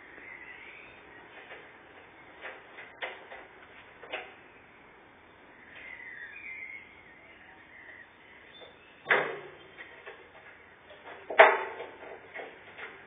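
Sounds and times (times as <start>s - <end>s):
wooden planks knocking: 9.1s - 13.0s.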